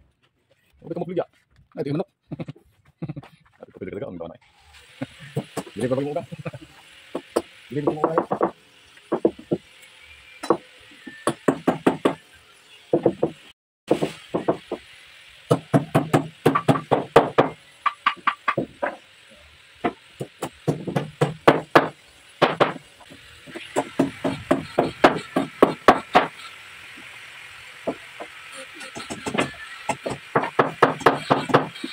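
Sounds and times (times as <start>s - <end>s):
hammer knocking on wood: 7.2s - 9.6s, 10.4s - 12.2s, 13.0s - 14.8s, 15.5s - 19.0s, 19.8s - 22.8s, 23.5s - 26.3s, 29.0s - 31.8s.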